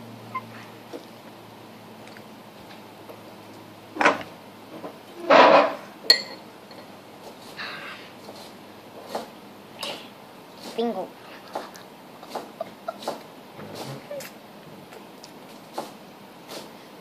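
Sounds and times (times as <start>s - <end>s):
fork clinking on bowl: 6.1s - 6.9s.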